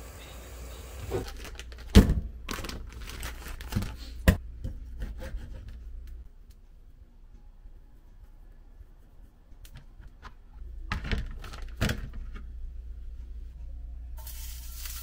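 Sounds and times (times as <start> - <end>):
plastic packet crinkling: 1.3 - 4.0, 11.1 - 12.0.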